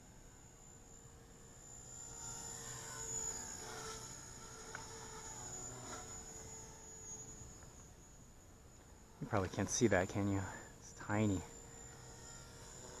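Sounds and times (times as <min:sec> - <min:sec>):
rc helicopter motor whine: 0:00.0 - 0:13.0.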